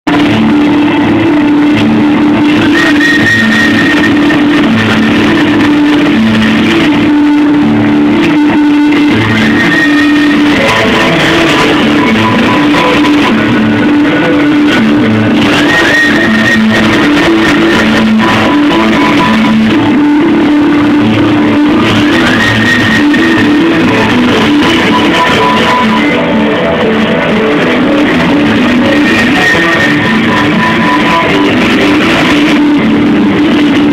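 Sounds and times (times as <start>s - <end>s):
drums: 0.0s - 33.9s
electric guitar: 0.0s - 33.9s
rock band playing loud: 0.1s - 33.9s.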